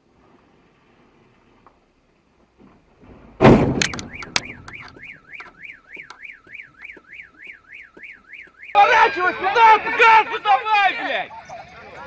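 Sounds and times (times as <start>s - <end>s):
truck bumping into car: 2.6s - 5.0s
car alarm warbling: 3.8s - 10.1s.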